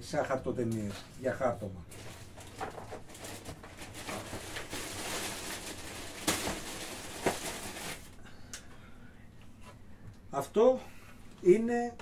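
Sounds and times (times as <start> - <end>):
plastic bag rustling: 0.9 - 8.2.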